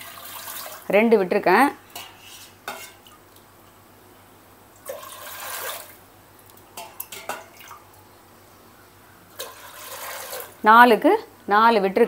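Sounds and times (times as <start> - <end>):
water pouring into pressure cooker: 4.8 - 6.0.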